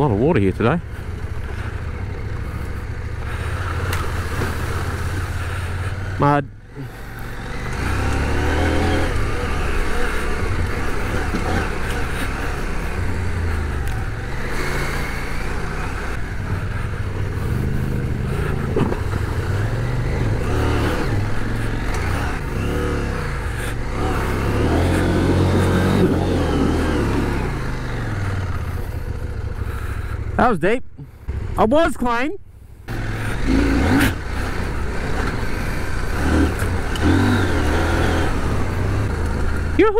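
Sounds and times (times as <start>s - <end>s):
motorcycle engine revving: 0.0s - 30.5s, 32.8s - 39.9s
wind and road noise: 0.0s - 39.9s.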